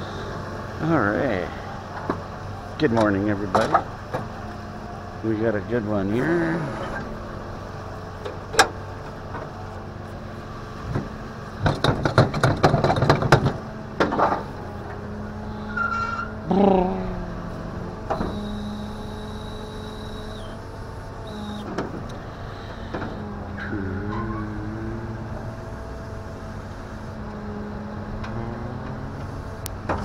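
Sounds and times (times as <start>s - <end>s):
truck engine hum: 0.0s - 30.0s
metal clattering and rattling: 10.9s - 14.5s
short squeal: 15.4s - 16.5s, 18.2s - 20.6s, 22.6s - 24.7s
high whine: 15.4s - 29.3s.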